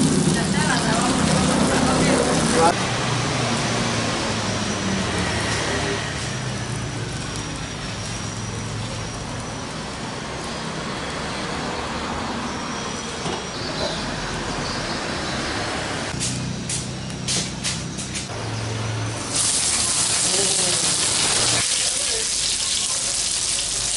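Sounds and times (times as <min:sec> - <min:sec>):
oil sizzling in a pan: 0:19.2 - 0:23.9.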